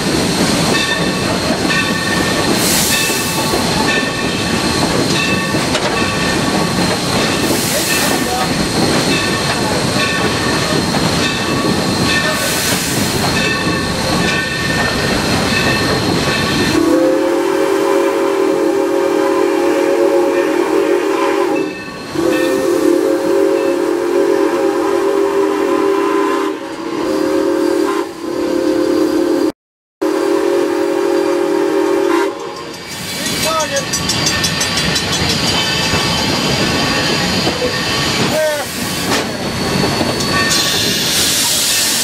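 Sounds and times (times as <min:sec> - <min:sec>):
rail noise: 0:00.0 - 0:42.0
steam locomotive hissing: 0:00.0 - 0:42.0
locomotive chime whistle blasts: 0:16.6 - 0:42.0.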